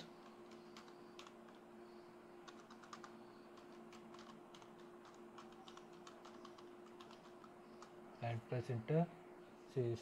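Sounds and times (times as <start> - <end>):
steady low hum: 0.0 - 10.0
keyboard typing: 0.2 - 1.6, 2.4 - 8.0.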